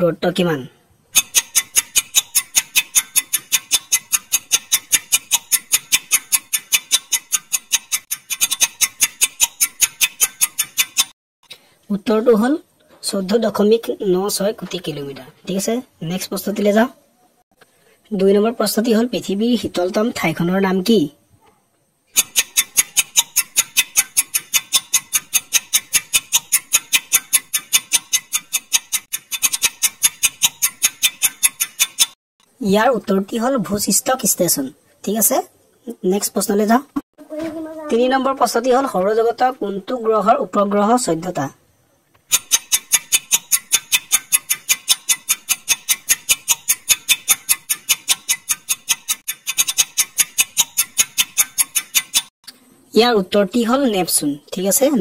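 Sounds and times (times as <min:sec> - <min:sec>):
timer ticking: 0:01.2 - 0:11.1, 0:22.2 - 0:32.6, 0:42.3 - 0:52.3.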